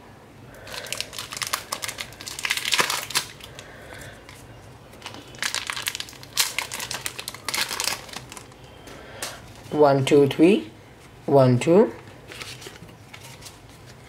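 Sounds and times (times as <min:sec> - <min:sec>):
foil wrapper tearing and crinkling: 0:00.6 - 0:08.8.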